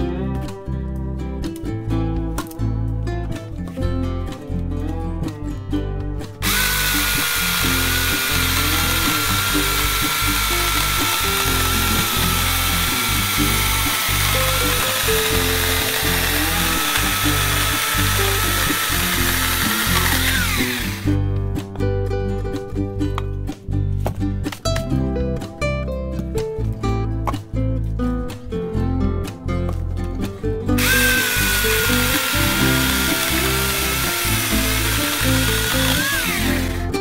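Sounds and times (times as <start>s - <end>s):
acoustic guitar music: 0.0s - 37.0s
electric chainsaw whining: 6.4s - 21.2s, 30.8s - 37.0s.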